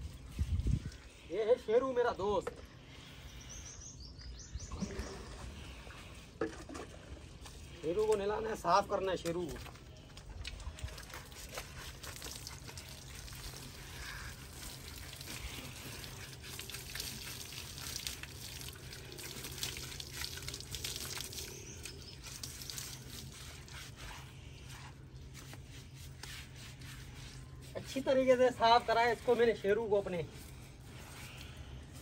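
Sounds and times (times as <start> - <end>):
water pouring and splashing: 4.7 - 24.2
water dripping onto wet ground: 12.2 - 23.2.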